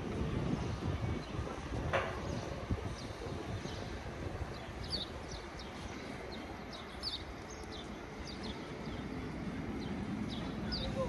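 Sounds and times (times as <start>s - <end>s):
small birds chirping: 2.2s - 11.0s.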